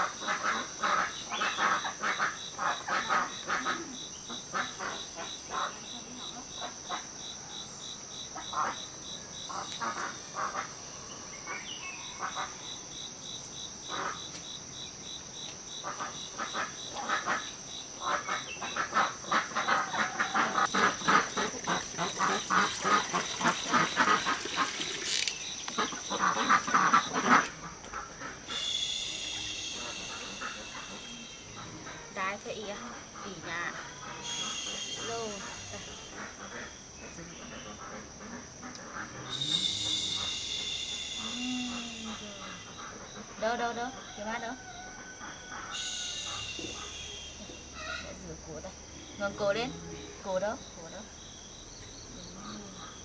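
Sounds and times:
insect pulsing trill: 0.0s - 53.0s
insects buzzing: 0.0s - 53.0s
poultry calling: 15.8s - 50.5s.

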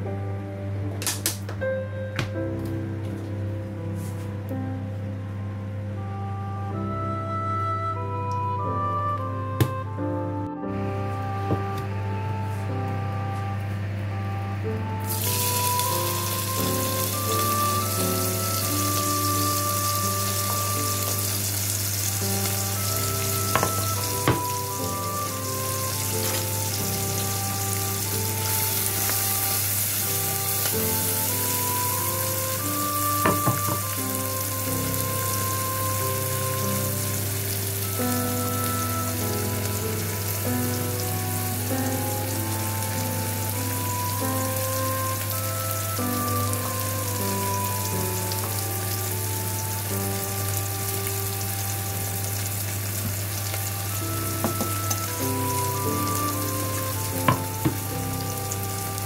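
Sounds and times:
onions sizzling in oil: 15.0s - 59.0s.

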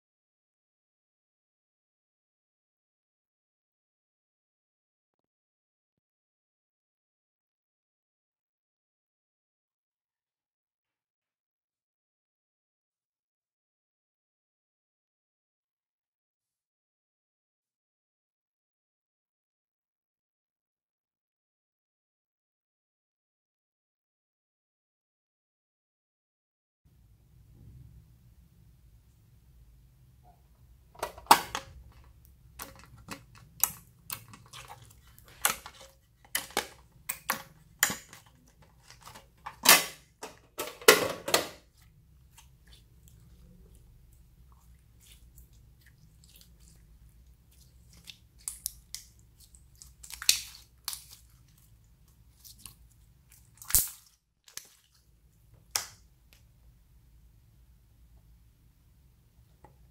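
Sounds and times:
slime popping and crackling: 47.6s - 51.5s, 52.4s - 54.8s.

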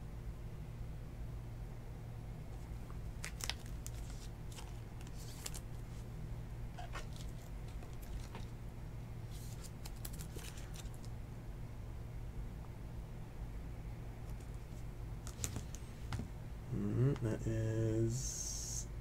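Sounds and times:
steady low hum: 0.0s - 19.0s
plastic sleeve crinkling: 2.6s - 6.0s, 6.8s - 8.5s, 9.3s - 11.1s.

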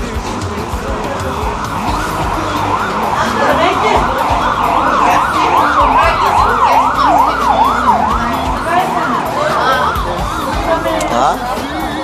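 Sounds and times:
electronic siren yelping: 1.0s - 12.0s.

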